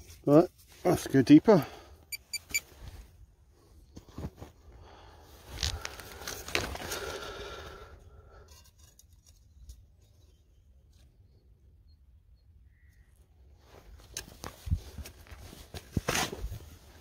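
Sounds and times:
scraping and crunching earth: 3.9 - 11.2, 13.6 - 17.0.

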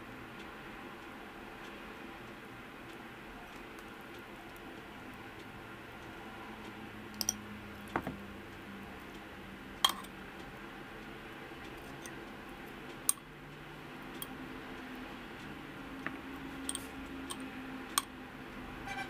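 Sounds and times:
faint steady hum: 0.0 - 19.0
metal spoon clinking on glass: 9.8 - 10.1.

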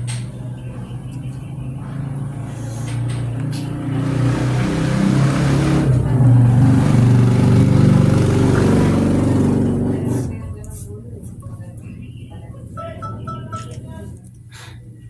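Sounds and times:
vehicle engine passing by: 0.4 - 10.4.

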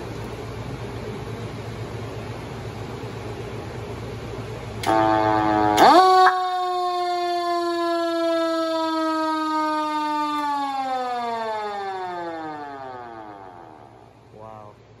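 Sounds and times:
fire truck siren winding down: 4.8 - 14.2.

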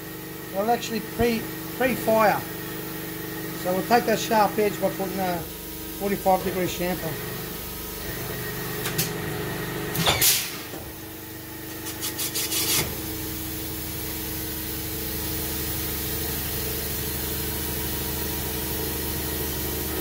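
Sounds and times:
machine cutter scraping metal: 11.7 - 12.9.

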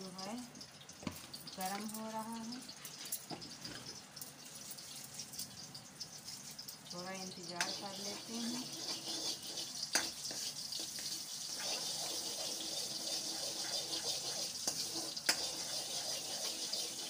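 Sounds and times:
oil hissing in a pan: 0.0 - 17.0
metal spoon clicking on pan: 7.5 - 7.8.

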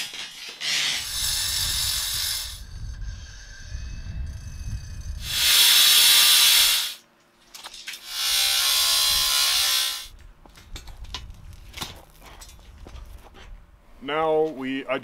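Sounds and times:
power tool cutting steel: 0.0 - 3.9, 5.2 - 7.0, 8.0 - 10.1.

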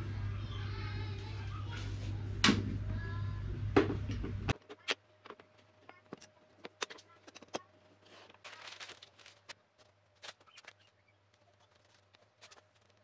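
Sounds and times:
newspaper rustling: 8.0 - 13.0.

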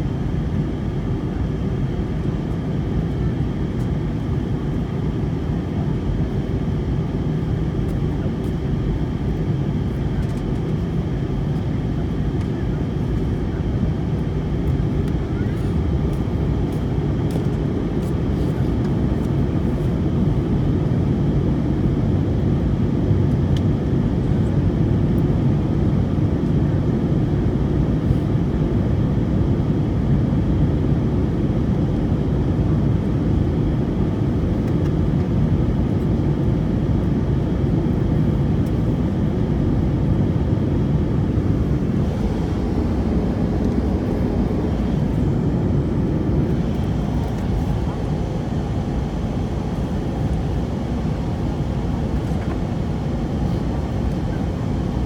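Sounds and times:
airliner cabin engine rush: 0.0 - 55.0.

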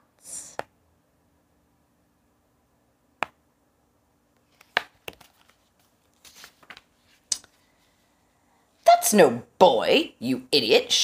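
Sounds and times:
book pages turning: 4.4 - 7.6.

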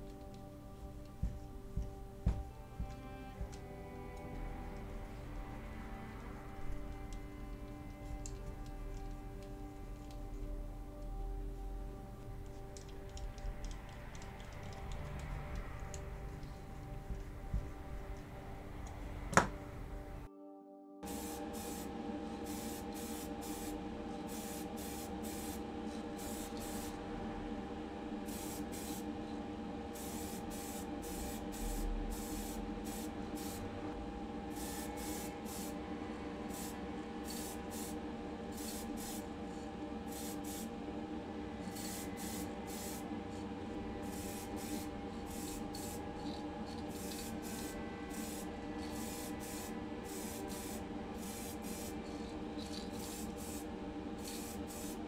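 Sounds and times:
steady hum: 0.0 - 20.3, 21.0 - 55.0
aerosol can spraying hiss: 12.5 - 20.2, 21.1 - 27.0, 28.2 - 29.1, 30.0 - 33.7, 34.5 - 35.8, 36.4 - 39.3, 40.1 - 40.7, 41.6 - 43.0, 44.0 - 55.0.

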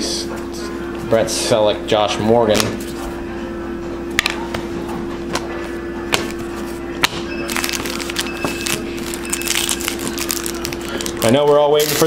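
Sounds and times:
steady hum: 0.0 - 12.0
foil card packs crinkling: 7.5 - 12.0.

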